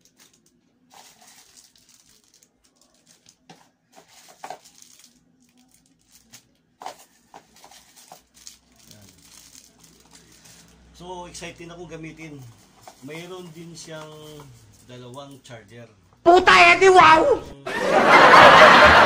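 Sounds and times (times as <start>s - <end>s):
plastic packaging crinkling: 0.0s - 10.8s.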